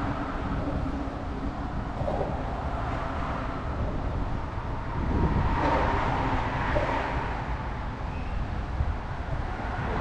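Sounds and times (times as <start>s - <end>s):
traffic noise: 0.0s - 10.0s
wind buffeting microphone: 0.0s - 10.0s.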